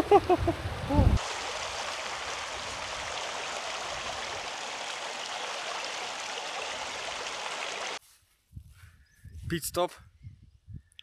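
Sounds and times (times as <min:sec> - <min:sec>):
water rushing: 0:00.0 - 0:08.0.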